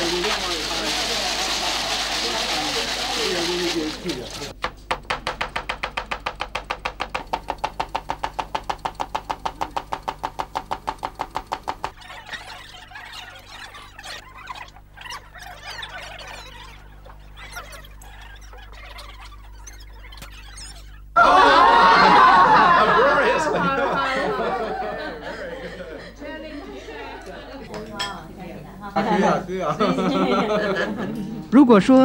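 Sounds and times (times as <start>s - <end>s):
rustling and handling noise: 0.0s - 4.6s
chopping on wooden block: 4.6s - 12.0s.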